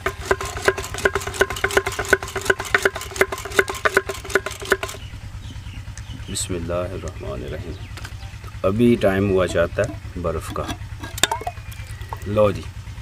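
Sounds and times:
rapid irregular clicking: 0.0s - 5.1s.

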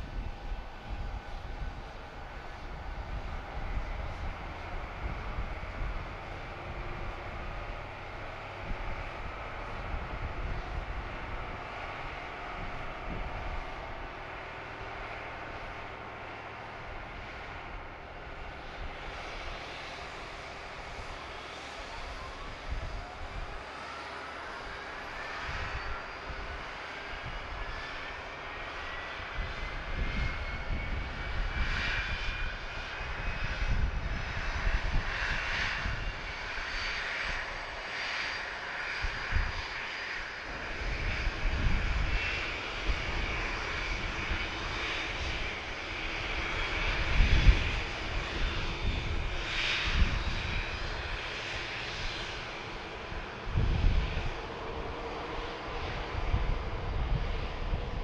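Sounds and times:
jet engines whining: 0.0s - 58.0s
wind rumbling on microphone: 0.0s - 58.0s.

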